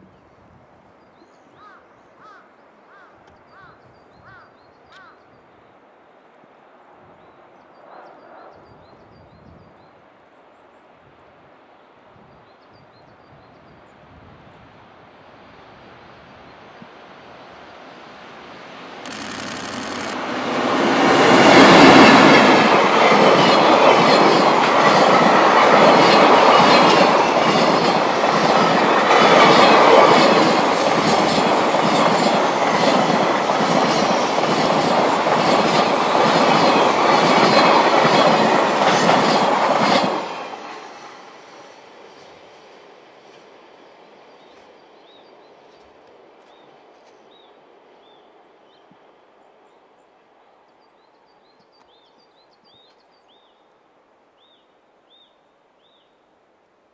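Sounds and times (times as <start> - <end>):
train rumble: 15.6 - 47.8
train wheels clattering: 21.5 - 41.0
high wheel squeal: 28.2 - 33.2, 33.8 - 37.7.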